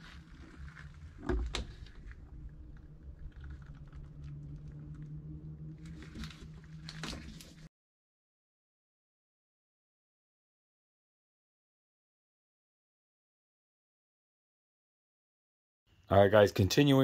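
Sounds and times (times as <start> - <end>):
low steady hum: 0.0 - 7.7.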